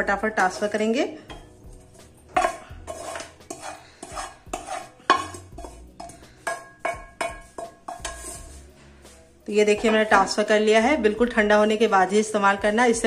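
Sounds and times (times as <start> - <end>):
spatula scraping a frying pan: 1.3 - 10.4.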